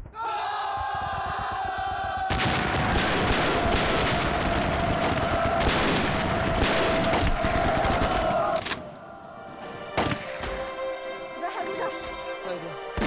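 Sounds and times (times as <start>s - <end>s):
rifles and machine guns firing: 2.3s - 8.6s.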